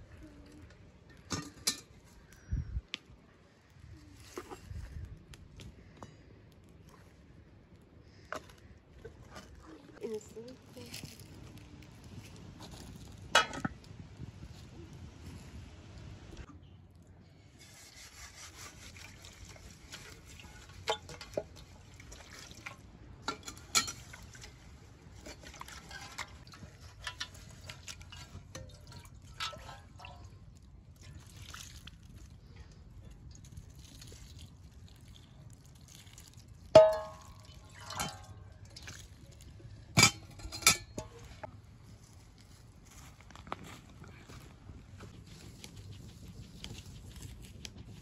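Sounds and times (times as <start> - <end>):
water pouring into metal basin: 33.2 - 39.6.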